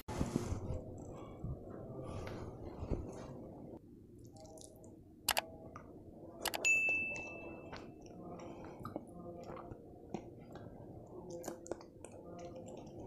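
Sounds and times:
faint chewing: 4.2 - 13.0
bright ding: 6.6 - 7.7.

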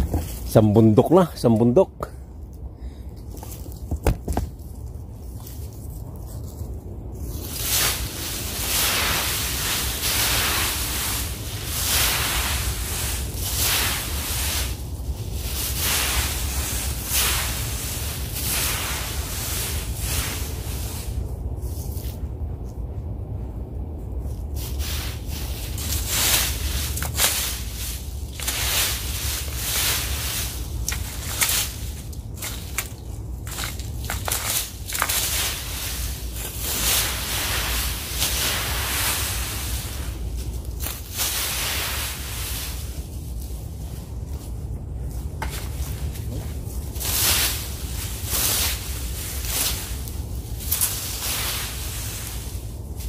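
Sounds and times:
rake sweeping dry leaves: 0.0 - 1.6, 4.5 - 22.2, 24.1 - 53.0
low rumble: 0.0 - 53.0.

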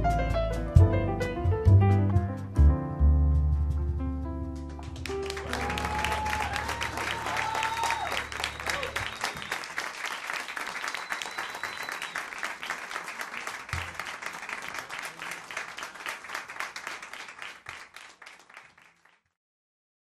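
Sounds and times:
small audience applauding: 4.8 - 19.4.

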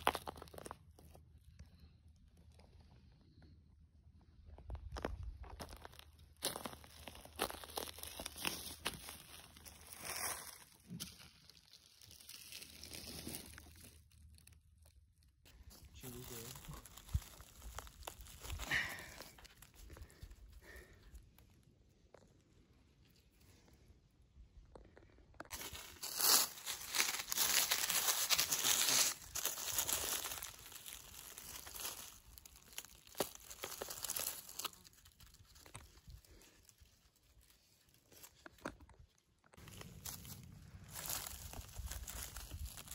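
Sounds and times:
footsteps crunching through dry leaves: 0.0 - 0.8, 5.0 - 14.1, 15.5 - 20.8, 25.5 - 38.6, 39.6 - 42.9
sharp crackles: 25.5 - 36.8, 39.5 - 42.9.

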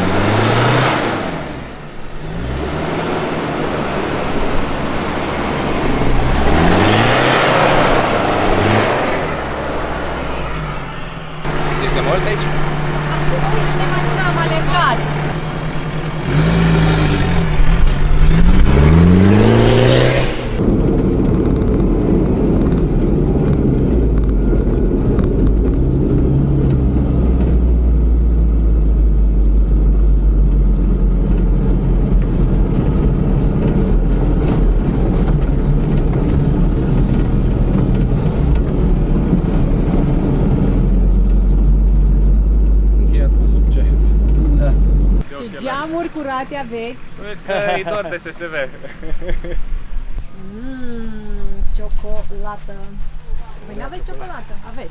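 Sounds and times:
truck engine revving: 0.0 - 52.4
rattling in cab: 11.3 - 19.2.

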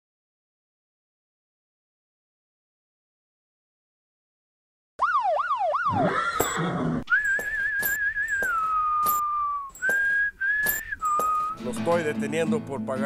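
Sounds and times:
police siren whoops: 5.0 - 6.6
whistled western melody: 6.4 - 13.0.

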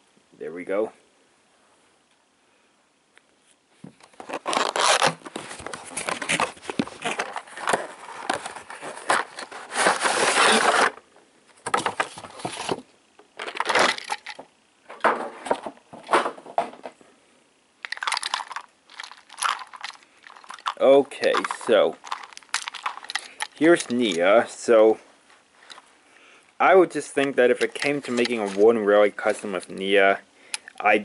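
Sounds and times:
cardboard flaps scraping and rustling: 4.1 - 11.0, 11.6 - 12.9
tape slit and torn: 4.2 - 5.3.

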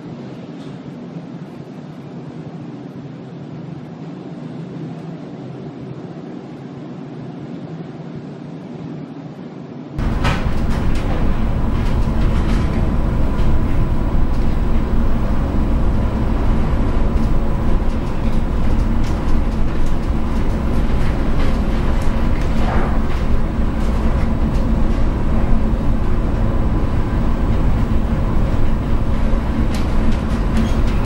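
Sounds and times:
storm wind and heavy sea rumble: 10.0 - 31.0.

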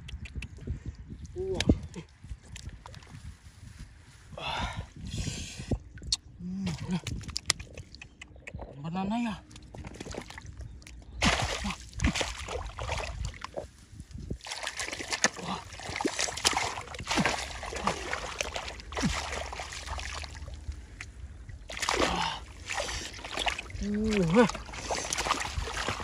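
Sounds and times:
water splashing and sloshing: 9.4 - 26.0.

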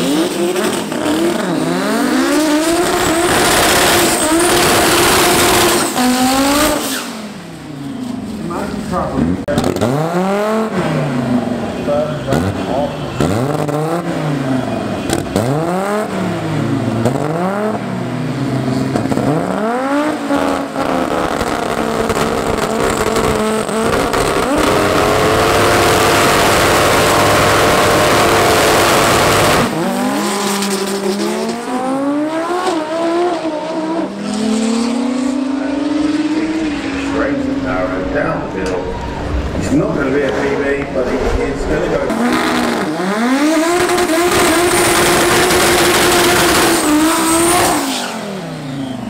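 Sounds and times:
turbocharged engine revving: 0.0 - 49.0.

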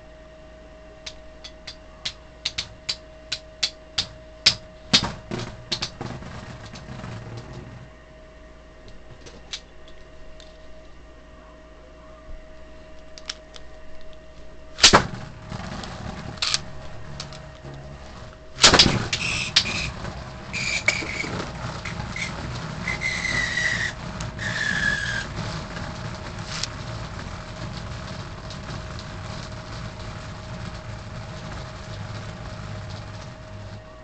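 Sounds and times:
whirring rattle of spinning tops: 1.0 - 7.9, 14.8 - 33.9
spinning tops clacking: 18.1 - 33.1
high scraping squeals: 18.8 - 25.6.

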